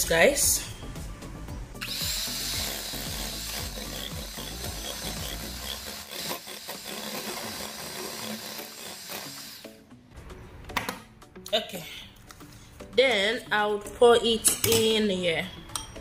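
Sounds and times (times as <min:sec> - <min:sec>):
electric hand mixer whisking eggs: 0:01.8 - 0:09.7.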